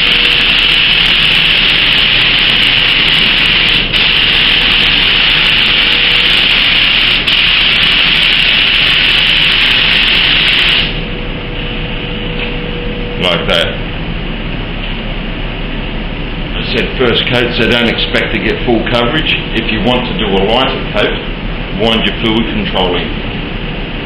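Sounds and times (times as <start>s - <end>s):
paint spray gun hissing: 0.0s - 11.0s.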